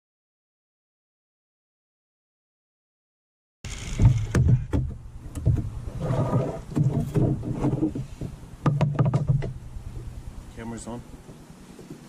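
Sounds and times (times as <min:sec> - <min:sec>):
knocks and thumps of tools: 0:03.7 - 0:05.8, 0:06.4 - 0:09.6.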